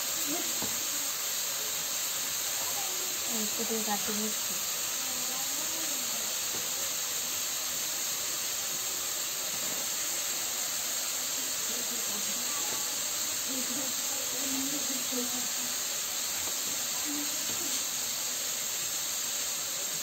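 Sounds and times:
food frying in a wok: 0.0 - 20.0
faint voices: 8.4 - 18.7.

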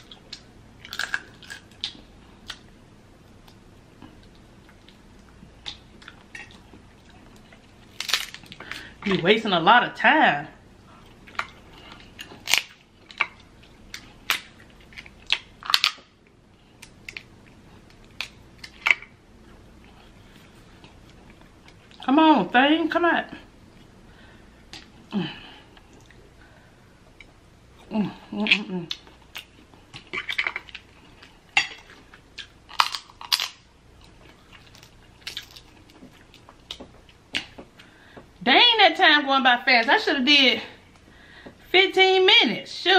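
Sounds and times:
crab shells cracking: 0.3 - 2.6, 7.9 - 8.9, 11.3 - 13.4, 14.0 - 16.2, 31.6 - 36.0.

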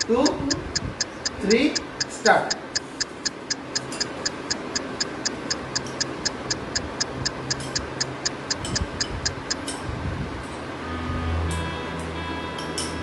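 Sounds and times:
rapid timer ticking: 0.0 - 9.6.

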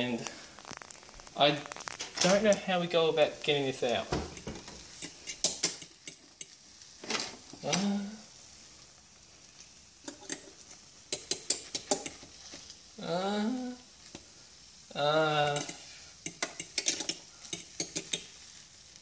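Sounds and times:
faint steady sizzle: 0.0 - 19.0
metal cutlery clicking and scraping: 4.3 - 7.4, 10.0 - 12.6, 15.5 - 18.4.

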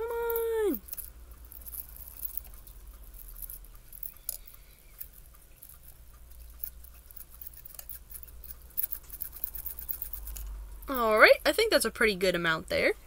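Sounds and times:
tiny pieces ticking onto plate: 0.8 - 11.2.

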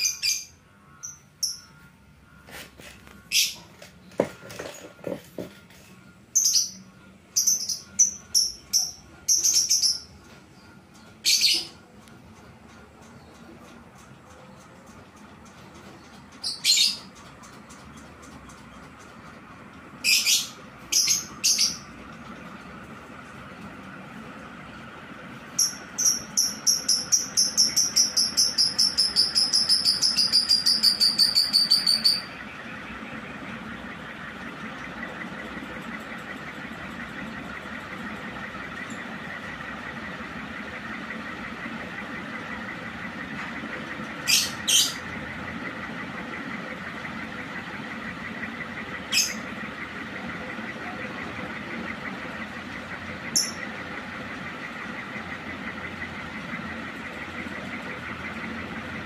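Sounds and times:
faint steady whine: 0.0 - 16.4, 17.0 - 59.0
ceiling fan humming: 0.0 - 59.0
short high electronic beeps: 25.6 - 32.4.

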